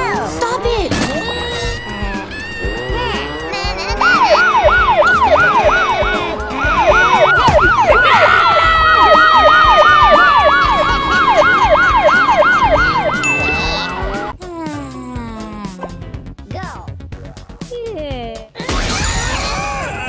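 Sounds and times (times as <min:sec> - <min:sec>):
police siren yelp: 0:01.5 - 0:14.3
held tone falling in pitch: 0:12.0 - 0:14.4.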